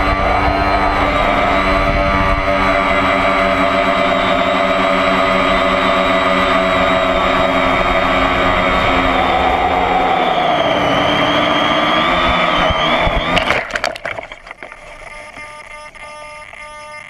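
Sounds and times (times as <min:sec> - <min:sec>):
low wind rumble: 0:00.0 - 0:13.3
model airplane motor whining: 0:00.0 - 0:17.0.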